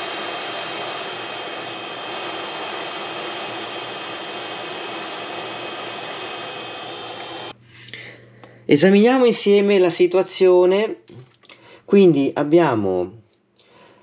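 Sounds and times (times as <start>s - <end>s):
hot-air station hissing: 0.0s - 7.6s
faint hum: 7.0s - 8.9s.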